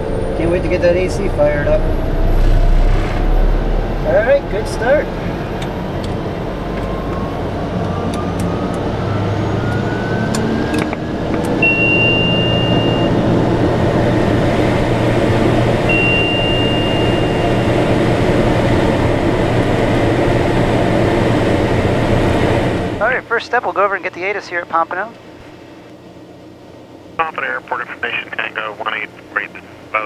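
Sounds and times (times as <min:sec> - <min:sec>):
turboprop engine idling: 0:09.6 - 0:30.0
short high tones: 0:11.6 - 0:13.2, 0:15.9 - 0:17.7.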